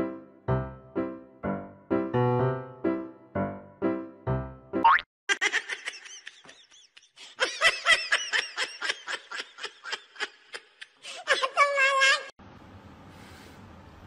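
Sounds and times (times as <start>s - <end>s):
high-pitched laughter: 5.3s - 12.3s.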